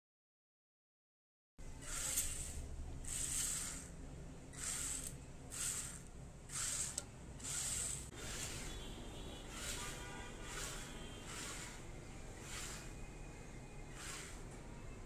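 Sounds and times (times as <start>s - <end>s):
toy car motors whirring: 1.8s - 8.7s, 9.5s - 11.8s, 12.4s - 13.0s, 13.9s - 14.4s.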